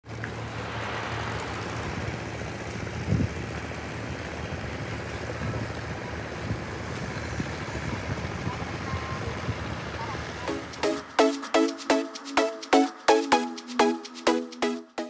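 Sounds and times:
water wash: 0.1 - 7.8.

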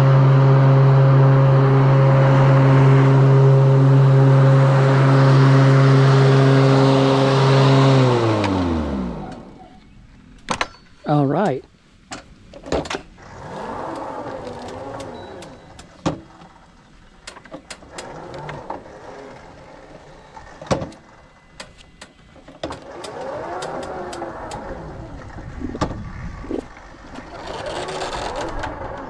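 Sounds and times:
electric mower motors whining: 0.0 - 11.5, 12.5 - 29.0
wooden gate clicks and knocks: 12.1 - 13.1.

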